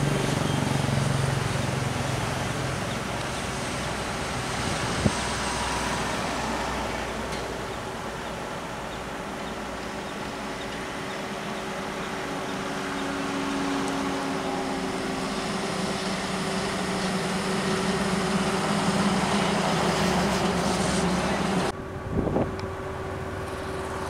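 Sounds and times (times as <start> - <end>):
diesel trucks driving past: 0.0 - 24.0
road noise: 0.0 - 24.0.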